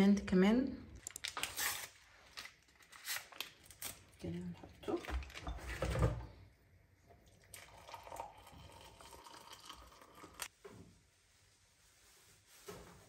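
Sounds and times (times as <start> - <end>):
water pouring into a glass mug: 7.1 - 10.5.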